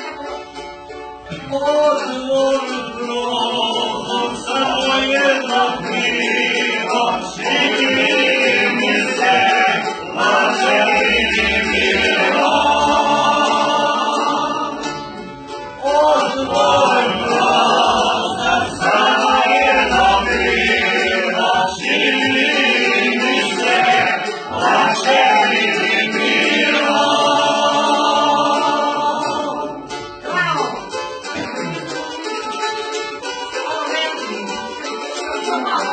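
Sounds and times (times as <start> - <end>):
group of voices singing: 1.3 - 35.9.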